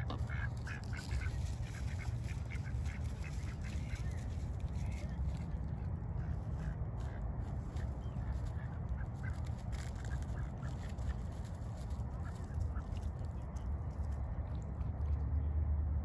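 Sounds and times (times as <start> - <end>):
ducks quacking: 0.0 - 13.7
steady low rumble: 0.0 - 16.0.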